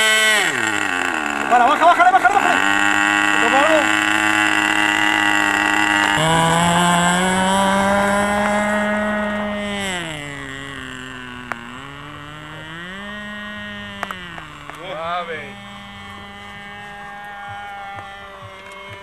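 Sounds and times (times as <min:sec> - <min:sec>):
model plane engine buzzing whine: 0:00.0 - 0:19.0.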